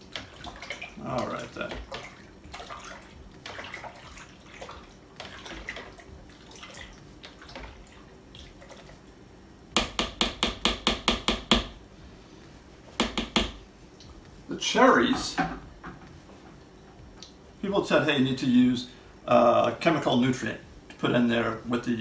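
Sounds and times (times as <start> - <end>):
spoon stirring liquid in bucket: 0.0 - 9.1
utensil knocking on bucket: 9.8 - 11.7, 13.0 - 13.6.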